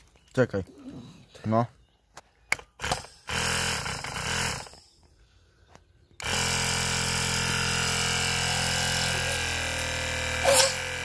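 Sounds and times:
air compressor electric buzz: 0:02.8 - 0:04.9, 0:06.2 - 0:11.0.

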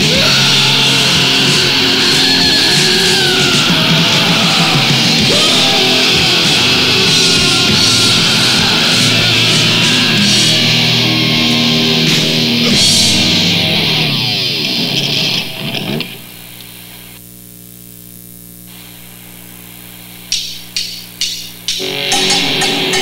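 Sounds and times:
low guitar notes ringing: 0:00.0 - 0:16.0, 0:20.3 - 0:23.0
distorted metal band playing: 0:00.0 - 0:16.3, 0:20.3 - 0:23.0.

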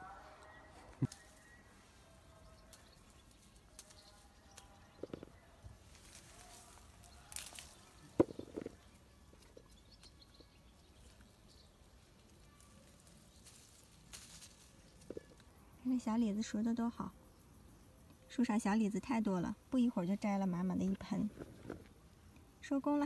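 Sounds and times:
leaves and branches rustling: 0:00.1 - 0:17.1
fruit snapping off stems: 0:07.3 - 0:08.3.

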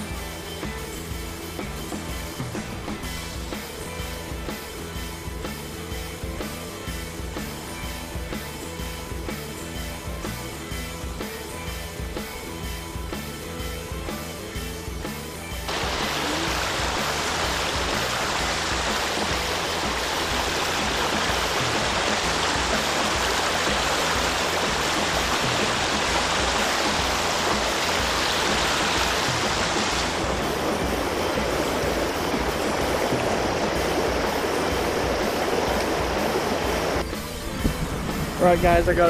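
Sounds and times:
river rushing over cobbles: 0:15.7 - 0:39.0.

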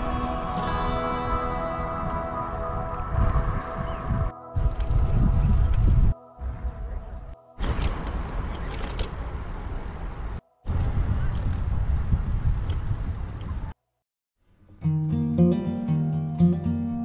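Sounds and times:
traffic rumble: 0:01.6 - 0:13.8.

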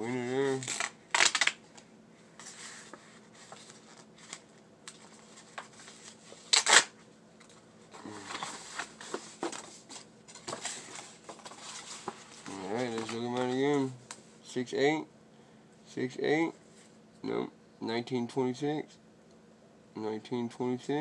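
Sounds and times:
paper tickets rustling and scraping: 0:00.0 - 0:01.6, 0:02.4 - 0:06.6, 0:08.0 - 0:14.0.

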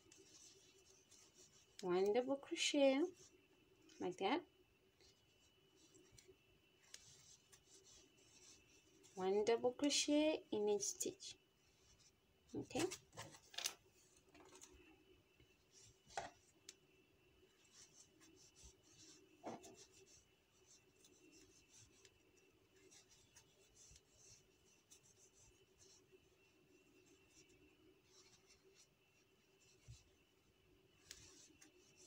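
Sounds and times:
cord rustling and scraping: 0:00.0 - 0:02.2, 0:11.7 - 0:14.9, 0:15.6 - 0:16.8, 0:17.5 - 0:32.0
faint steady hum: 0:00.0 - 0:32.0.

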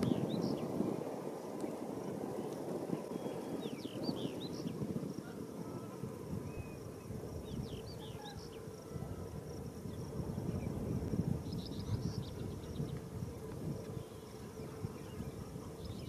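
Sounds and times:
small birds chirping: 0:00.0 - 0:08.7, 0:11.4 - 0:13.2.

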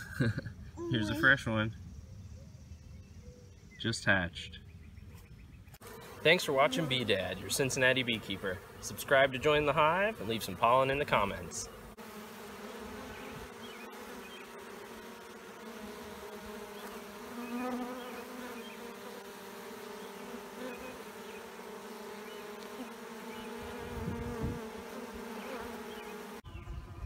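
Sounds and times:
honey bees buzzing: 0:05.7 - 0:27.0.

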